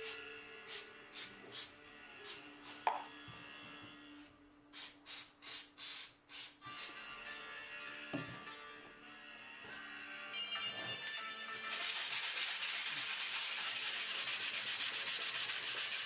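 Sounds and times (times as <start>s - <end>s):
aerosol spray hissing: 4.8s - 6.9s, 11.7s - 15.2s.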